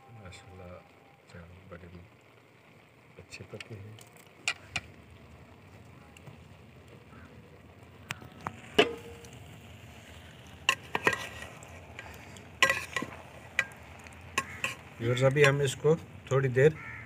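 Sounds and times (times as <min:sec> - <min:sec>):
faint steady hiss: 0:00.0 - 0:17.0
metal spoon clinking and scraping pot: 0:10.6 - 0:15.8.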